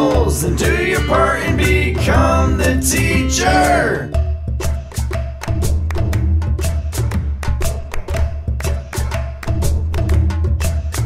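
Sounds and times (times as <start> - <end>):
bass line: 0.0 - 4.8
instrumental children's song music: 0.0 - 11.0
steady percussion beat: 0.0 - 11.0.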